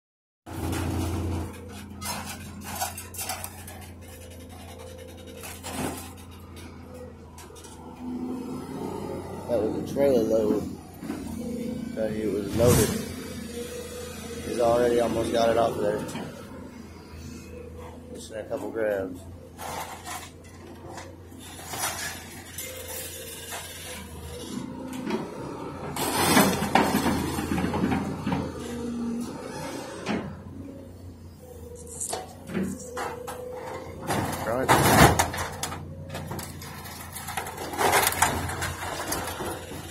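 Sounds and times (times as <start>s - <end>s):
sharp metal clanks and scrapes: 0.6s - 7.8s, 19.6s - 24.6s, 31.7s - 39.9s
grapple machine engine running: 31.6s - 39.9s.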